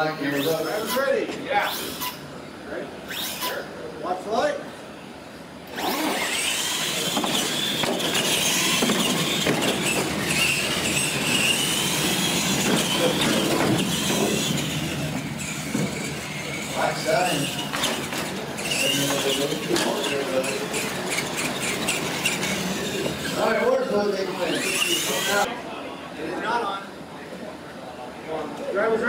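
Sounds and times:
toy truck motors whining: 0:00.0 - 0:02.3, 0:03.1 - 0:03.7, 0:05.7 - 0:25.5.

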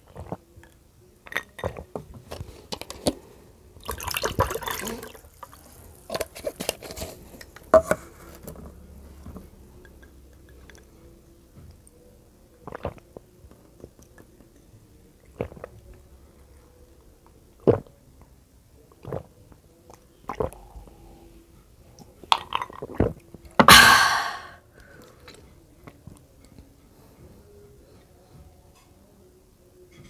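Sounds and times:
loud breathy exhale: 0:23.7 - 0:24.6.

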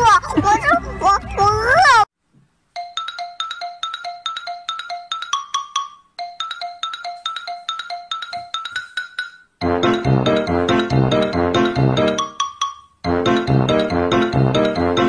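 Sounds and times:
mallet percussion tune: 0:02.8 - 0:15.0.

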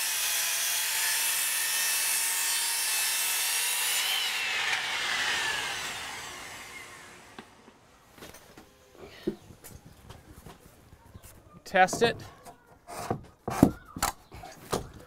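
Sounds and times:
circular saw cutting wood: 0:00.0 - 0:07.8
saw blade winding down: 0:00.7 - 0:07.6.

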